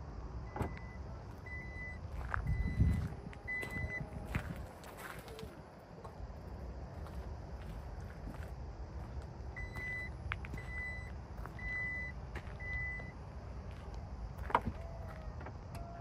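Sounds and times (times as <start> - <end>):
warning beeps: 0.5 - 4.2, 9.6 - 13.1.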